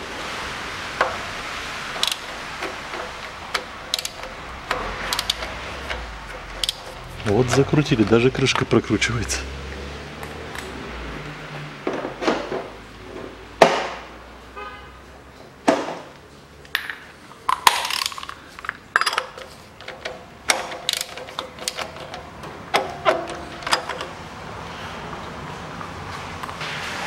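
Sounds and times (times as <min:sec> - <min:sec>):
metal hand tools clinking: 0:17.5 - 0:24.1.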